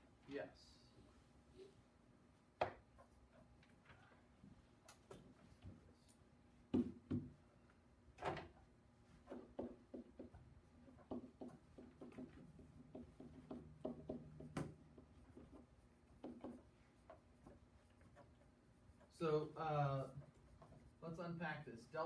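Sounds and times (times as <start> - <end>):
knocks on a board: 6.7 - 7.3, 9.3 - 10.3, 11.0 - 14.8
marker writing on a board: 9.2 - 19.2, 19.8 - 21.2.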